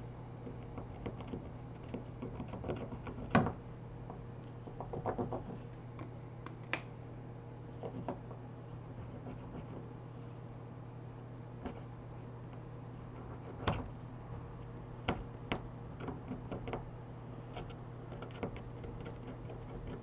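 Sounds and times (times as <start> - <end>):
steady low hum: 0.0 - 20.0
small tools tapping a phone: 0.4 - 6.9.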